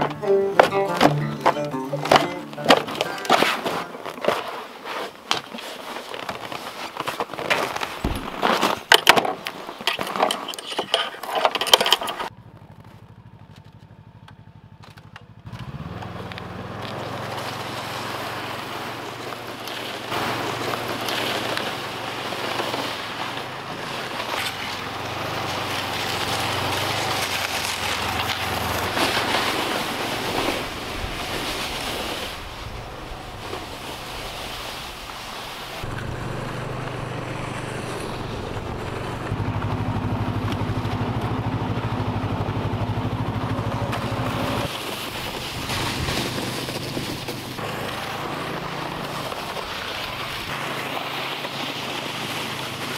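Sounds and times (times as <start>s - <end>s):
snowmobile engine running: 0.0s - 4.7s, 15.4s - 52.9s
knocks and clatter: 7.4s - 12.3s.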